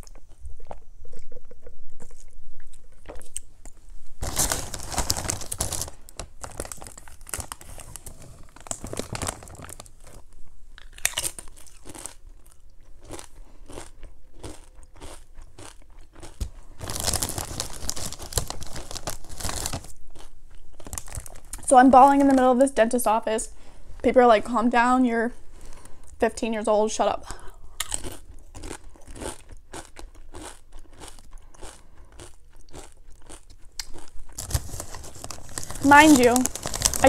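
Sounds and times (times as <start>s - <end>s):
chip bag rustling: 4.2s - 10.2s, 15.0s - 22.4s, 32.8s - 37.0s
crunching chips: 4.2s - 22.4s, 27.8s - 37.0s.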